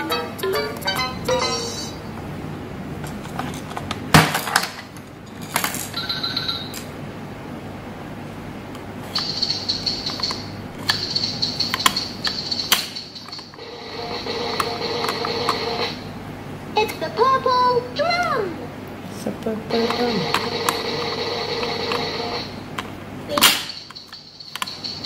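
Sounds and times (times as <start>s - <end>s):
toy playing a tune: 0.0s - 2.0s.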